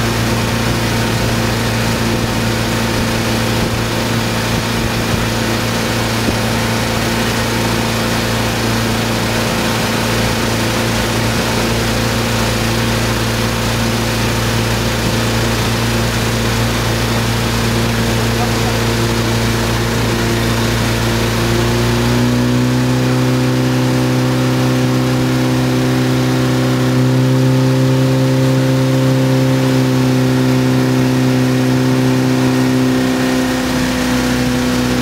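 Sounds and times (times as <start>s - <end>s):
wind noise: 0.0s - 18.3s
motorboat engine running: 0.0s - 35.0s
water rushing: 0.0s - 35.0s.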